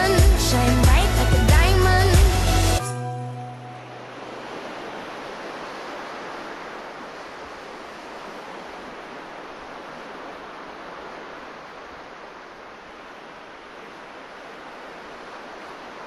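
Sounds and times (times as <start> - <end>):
pop song: 0.0 - 3.8
ocean waves: 0.0 - 16.0.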